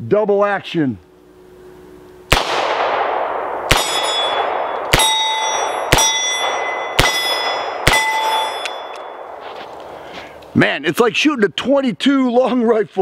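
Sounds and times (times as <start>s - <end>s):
steel plate target clanging: 3.7s - 9.4s.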